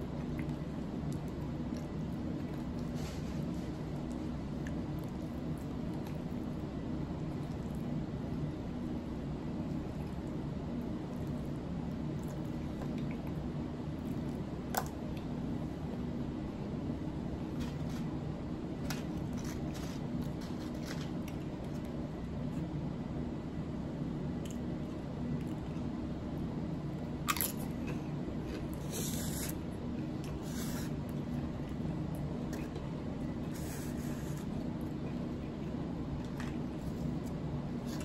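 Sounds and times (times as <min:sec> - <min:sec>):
close-up chewing: 0:00.0 - 0:15.4
steady low hum: 0:00.0 - 0:38.0.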